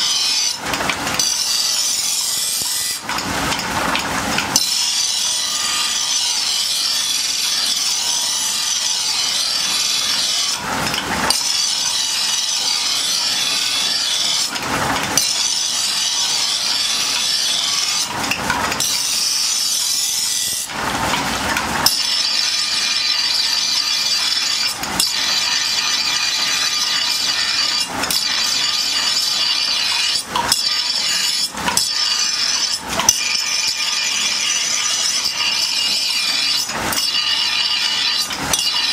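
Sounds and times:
blade on grinding wheel: 0:00.0 - 0:38.9.

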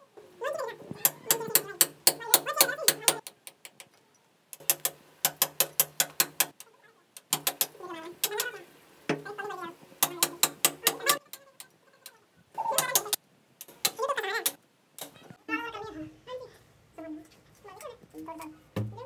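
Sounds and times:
person talking: 0:00.3 - 0:03.2, 0:07.7 - 0:13.2, 0:13.9 - 0:19.0
hammer striking chisel into wall: 0:01.0 - 0:03.7, 0:04.6 - 0:06.6, 0:07.3 - 0:08.5, 0:10.0 - 0:11.2.

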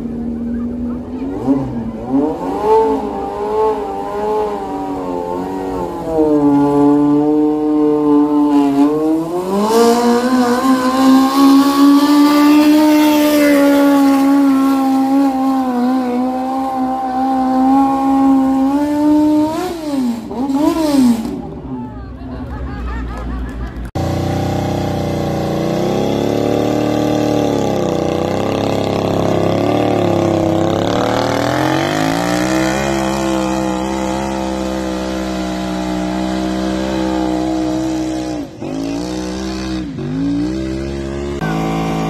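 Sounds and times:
tractor engine running hard: 0:23.9 - 0:42.0.

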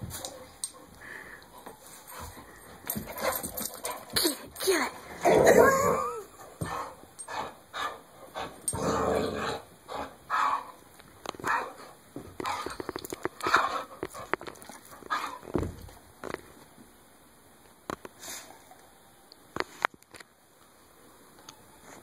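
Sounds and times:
dog play growling: 0:05.0 - 0:10.7.

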